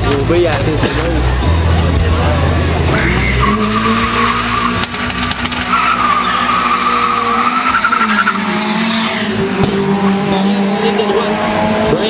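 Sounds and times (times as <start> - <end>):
race car engines revving: 0.0 - 12.0
car rushing past: 2.6 - 12.0
tyre squeal: 2.9 - 9.4.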